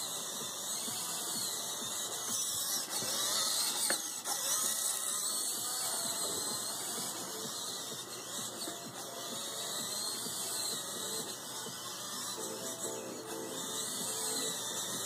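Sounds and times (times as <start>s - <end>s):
high-pitched electric motor whine: 0.0s - 15.0s.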